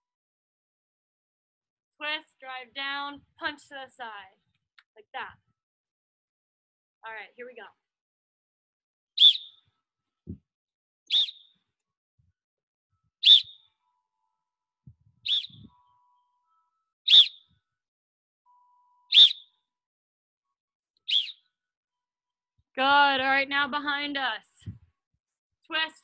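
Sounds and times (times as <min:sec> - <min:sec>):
sports whistle blasts: 0:09.2 - 0:09.5, 0:11.1 - 0:11.4, 0:13.2 - 0:13.6, 0:15.3 - 0:15.7, 0:19.1 - 0:19.4, 0:21.1 - 0:21.3.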